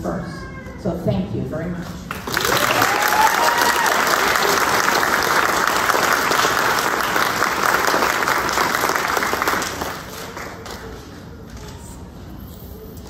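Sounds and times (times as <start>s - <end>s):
audience applauding: 2.1s - 11.3s.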